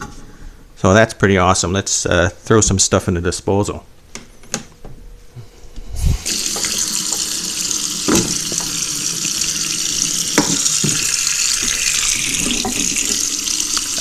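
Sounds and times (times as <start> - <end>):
water running into metal sink: 6.2 - 14.0.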